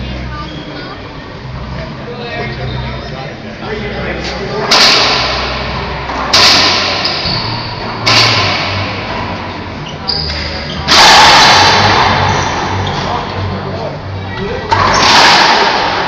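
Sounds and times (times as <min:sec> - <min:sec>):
racquetball hitting court floor: 0:04.7 - 0:13.2, 0:14.7 - 0:16.0.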